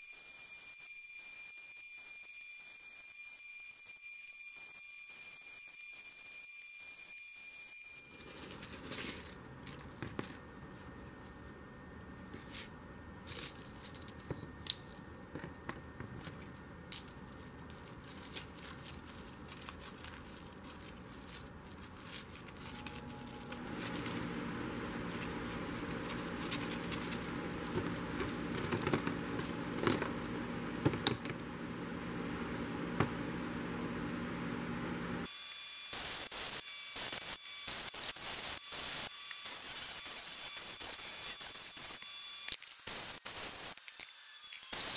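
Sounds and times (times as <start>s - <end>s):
metal parts and tools clinking: 8.0s - 10.5s, 12.3s - 31.5s
steady hum with hiss: 8.0s - 44.9s.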